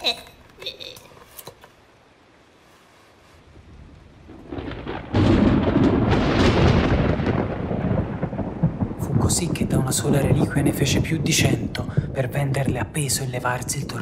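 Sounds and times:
deep thunder-like rumble: 3.6 - 14.0.

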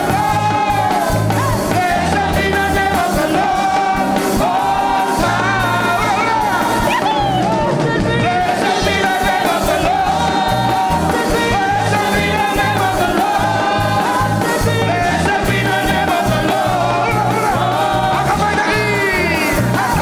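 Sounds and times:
band playing a steady beat: 0.0 - 20.0
man singing into a microphone: 7.7 - 20.0.

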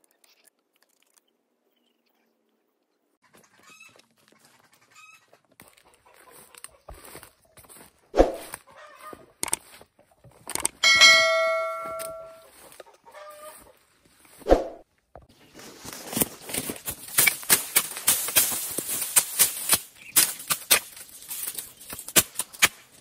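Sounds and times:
faint chicken calls: 3.2 - 9.4, 10.8 - 13.9
footsteps through undergrowth: 5.5 - 10.4, 11.0 - 23.0
notification bell ding: 10.8 - 12.5.

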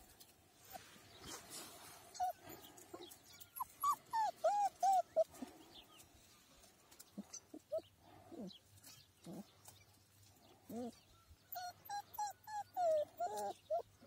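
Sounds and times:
puppy whimpering: 2.1 - 5.4, 10.7 - 14.0.

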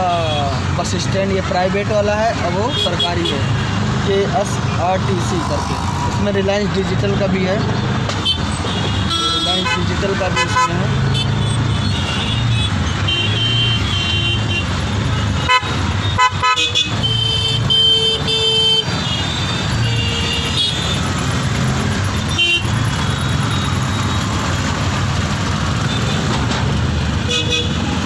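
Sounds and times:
auto-rickshaw engine running: 0.0 - 28.0
vehicle horns honking: 2.5 - 3.9, 8.2 - 21.2, 22.1 - 24.3, 27.2 - 28.0.

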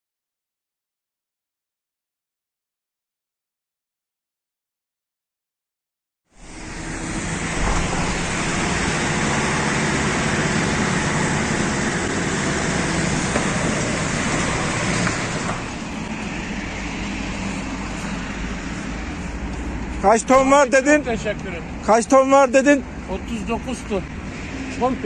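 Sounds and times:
road and traffic noise: 6.3 - 25.0
vehicle engines running: 6.4 - 25.0.

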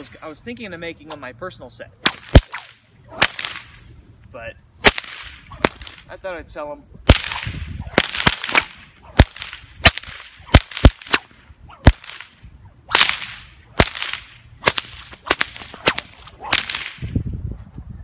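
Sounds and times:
whip cracking: 2.0 - 3.9, 4.8 - 6.1, 7.1 - 17.2
whip swishing through air: 2.0 - 3.9, 4.8 - 6.1, 7.1 - 17.2.

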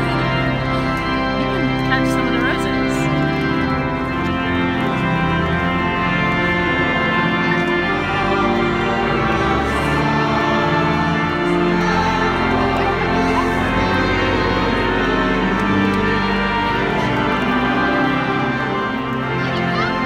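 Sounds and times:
organ music: 0.0 - 20.0
voices singing: 6.5 - 20.0.

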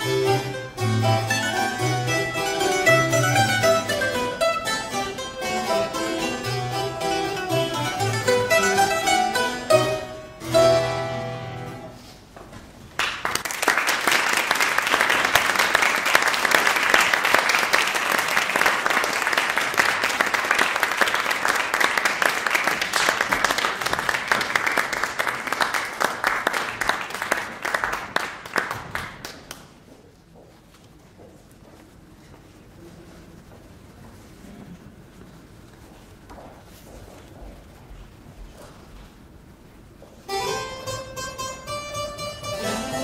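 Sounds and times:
mandolin and harpsichord chords: 0.0 - 11.8, 40.3 - 43.0
audience applauding: 13.0 - 29.8.

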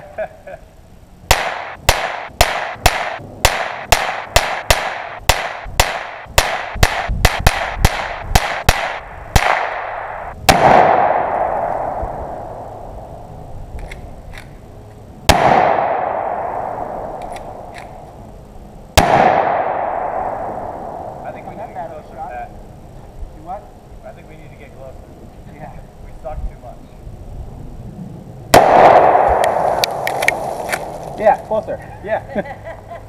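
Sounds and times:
rapid gunfire: 1.3 - 11.6, 28.6 - 30.1
loud single gun blasts: 1.3 - 12.8, 15.3 - 18.0, 19.0 - 21.2, 28.5 - 30.6
rolling echo: 1.3 - 14.7, 15.3 - 18.3, 19.0 - 22.6, 28.5 - 31.7.

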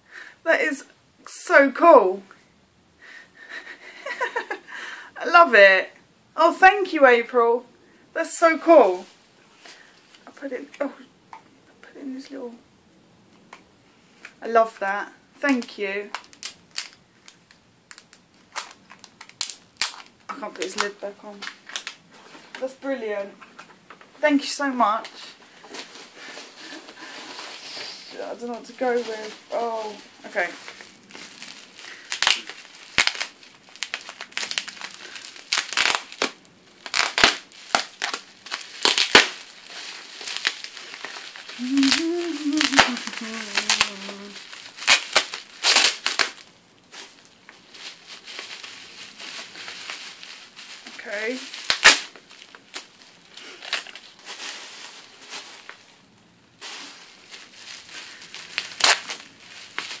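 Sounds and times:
wrapping paper crinkling: 15.5 - 23.6, 24.4 - 60.0.

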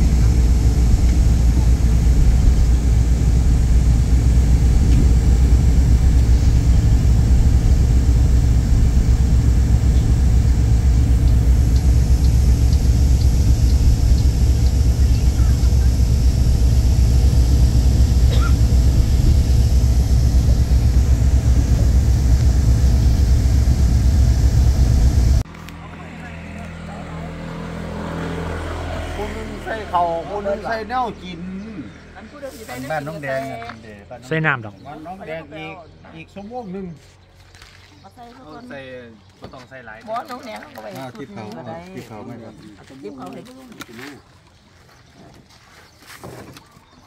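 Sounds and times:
train rumble inside carriage: 0.0 - 25.4.

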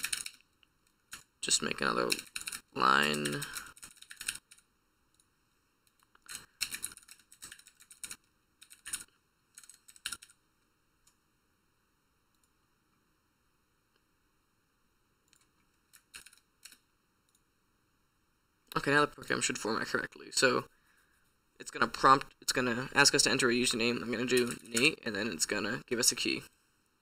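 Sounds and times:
typing on computer keyboard: 0.0 - 0.4, 1.1 - 1.3, 2.1 - 4.7, 5.9 - 10.4, 15.3 - 16.8.

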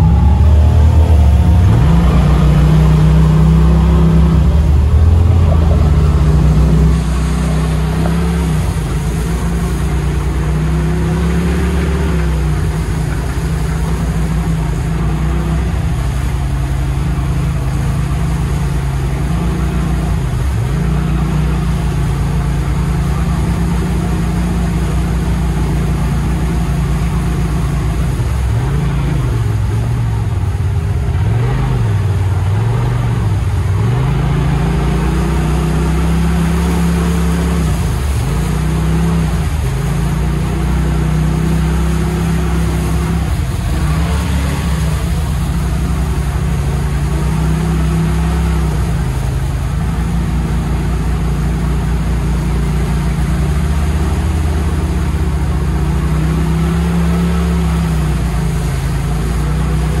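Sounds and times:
engine revving hard: 31.2 - 60.0.

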